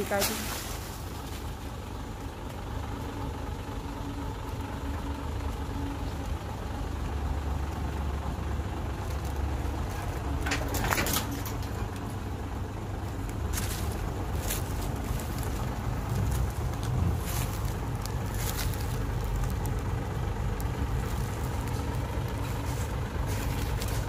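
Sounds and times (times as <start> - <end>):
truck diesel engine running: 0.0 - 24.0
clatter of knocks: 10.4 - 12.0.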